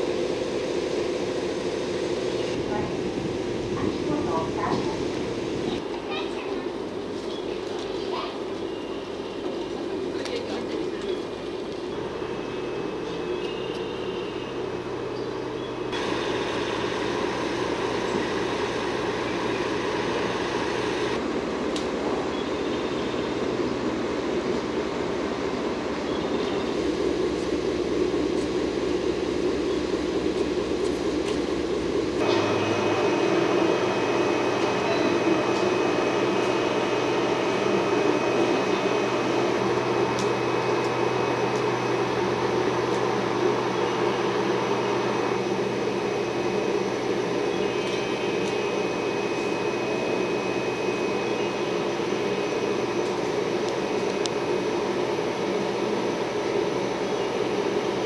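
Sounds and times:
locomotive blowers whirring: 0:11.6 - 0:58.0
faint high whine: 0:15.6 - 0:58.0.

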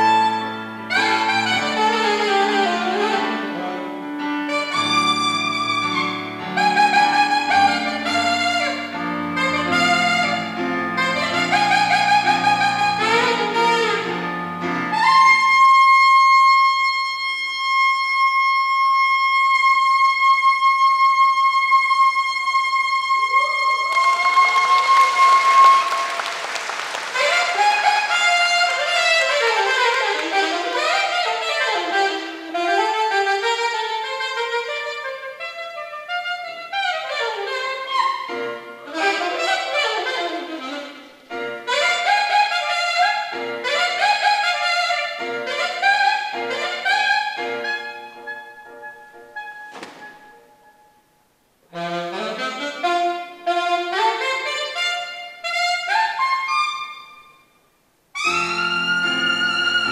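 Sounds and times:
saxophone solo: 0:00.0 - 0:51.0, 0:51.6 - 0:59.9
piano accompaniment: 0:00.0 - 0:57.3, 0:58.2 - 0:59.9
audience applause: 0:23.4 - 0:27.6.

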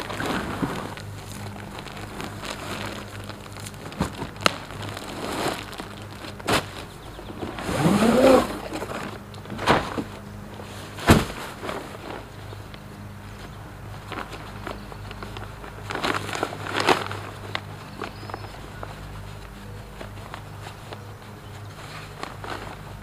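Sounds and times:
cardboard scraping and plastic crinkling: 0:00.0 - 0:12.8, 0:13.4 - 0:23.0
heavy thump: 0:11.0 - 0:11.8.

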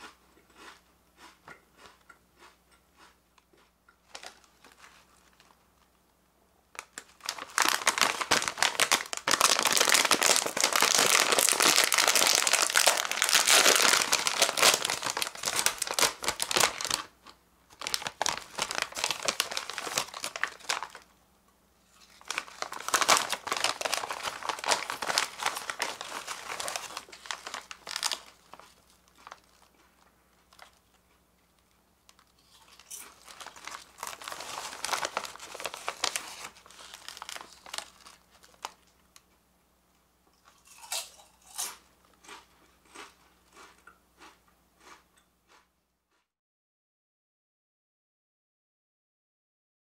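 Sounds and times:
plastic chip bag crinkling: 0:04.0 - 0:06.0, 0:06.7 - 0:21.1, 0:21.9 - 0:39.0.

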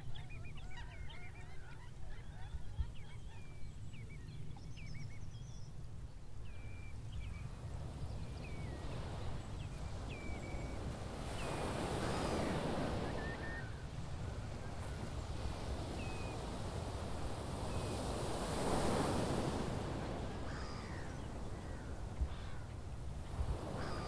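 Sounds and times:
high bird calls: 0:08.2 - 0:16.8.

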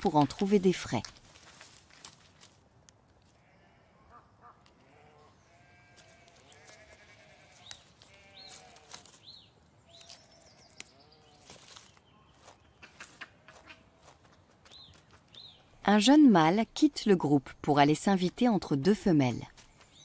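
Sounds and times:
sheep bleating: 0:03.4 - 0:09.0.

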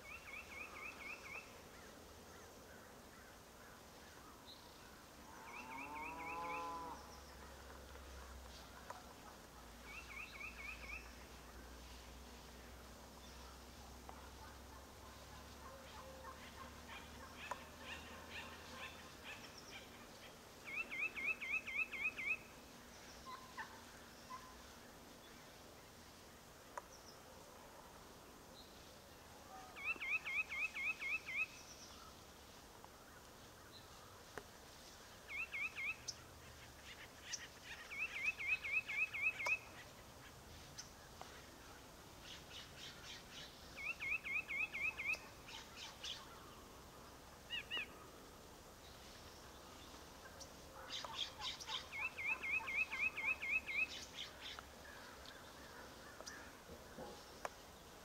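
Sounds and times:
wild turkeys calling: 0:50.4 - 0:57.6.

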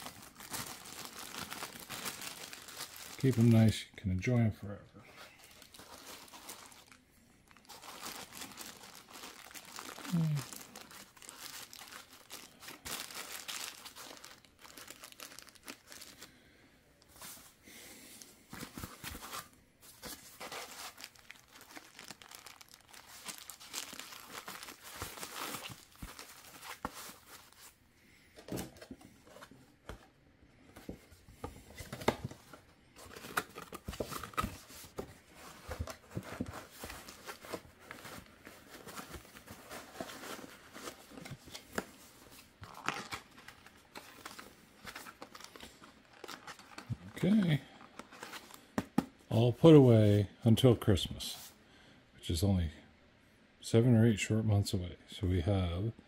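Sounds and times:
plastic bags crinkling: 0:00.0 - 0:03.8, 0:05.4 - 0:16.4, 0:18.5 - 0:27.8, 0:33.0 - 0:48.7.

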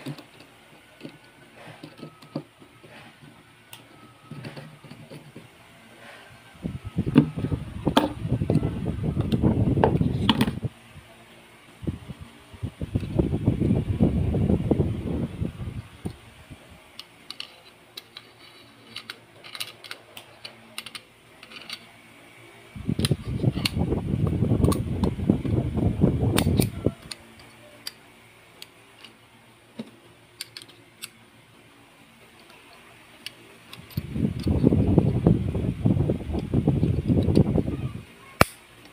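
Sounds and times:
metal rubbing and scraping: 0:00.0 - 0:09.3, 0:17.3 - 0:21.9
small metal clicks and taps: 0:29.8 - 0:31.2.

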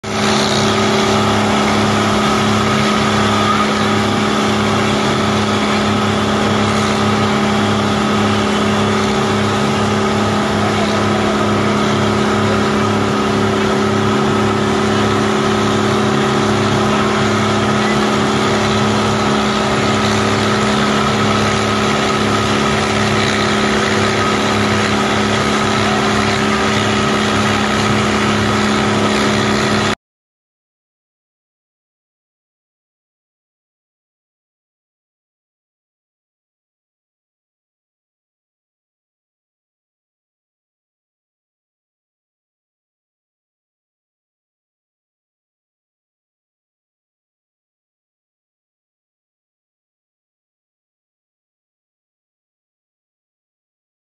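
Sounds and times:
boat engine droning: 0:00.0 - 0:30.0
wind and water rushing: 0:00.0 - 0:30.0.

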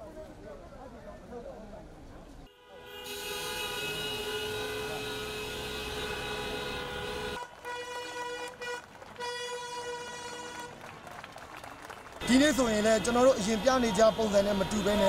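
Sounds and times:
vehicle horns honking: 0:02.5 - 0:10.8, 0:12.2 - 0:15.0.

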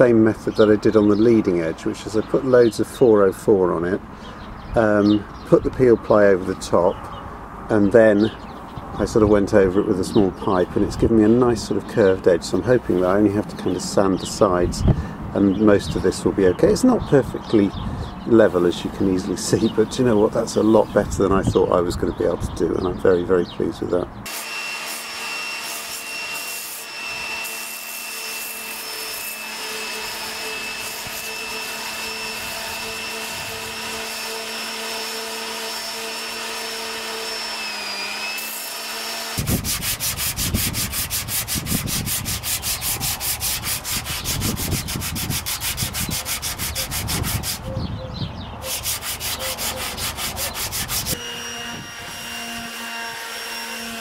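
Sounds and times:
electric orbital sander sanding: 0:24.3 - 0:47.7, 0:48.6 - 0:54.0.

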